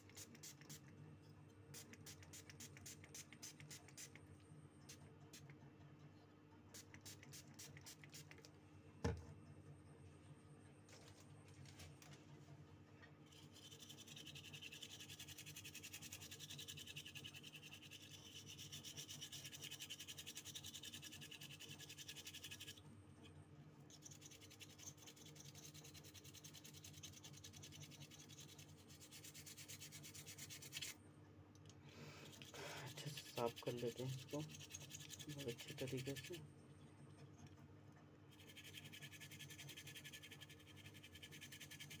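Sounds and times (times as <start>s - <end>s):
small brush scrubbing circuit board: 0.0s - 0.9s, 1.7s - 4.2s, 6.7s - 8.5s, 13.2s - 22.8s, 23.9s - 31.0s, 32.2s - 36.4s, 38.3s - 42.0s.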